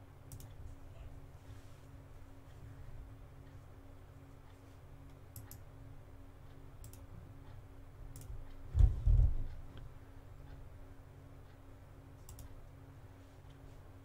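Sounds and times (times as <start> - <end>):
low steady hum: 0.0 - 14.0
sharp light clicks: 0.3 - 0.6, 5.1 - 5.7, 6.5 - 7.1, 8.1 - 8.6, 12.2 - 12.6
dull low thump: 8.7 - 9.5.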